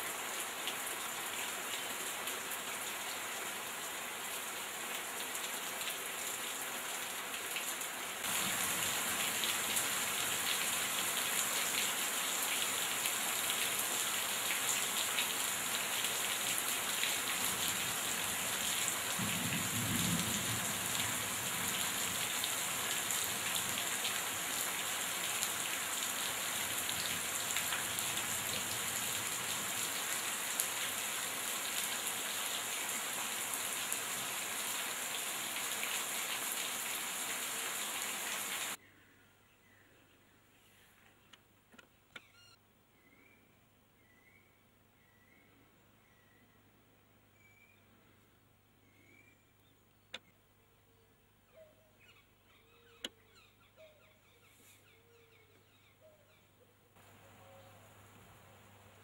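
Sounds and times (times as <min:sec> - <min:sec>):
heavy rain: 0:00.0 - 0:38.8
water streaming off roof: 0:07.3 - 0:38.8
thunder rumble: 0:19.2 - 0:20.8.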